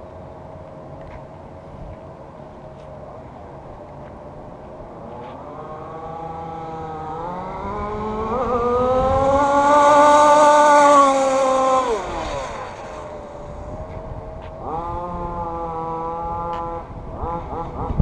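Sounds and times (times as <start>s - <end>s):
rc car engine running: 5.4s - 18.0s.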